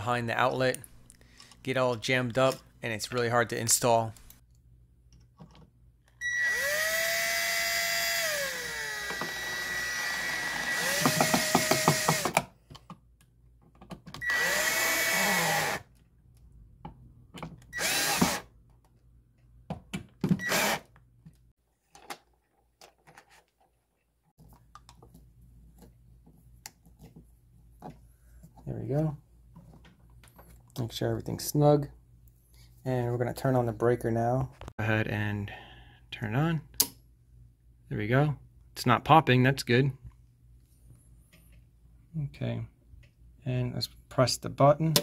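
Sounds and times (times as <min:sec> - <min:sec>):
cordless drill motor whining: 0:06.2 - 0:12.4, 0:14.2 - 0:15.8, 0:17.8 - 0:18.5, 0:20.4 - 0:20.9.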